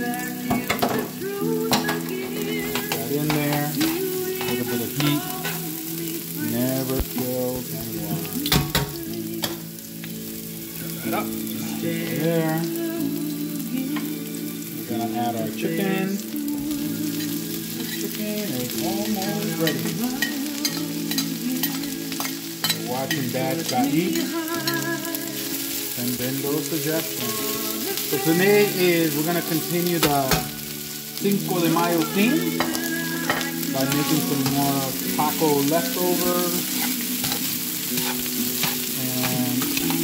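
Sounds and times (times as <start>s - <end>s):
music: 0.0s - 40.0s
onions sizzling in frying pan: 0.0s - 40.0s
metal tongs clicking against pan: 19.8s - 23.8s.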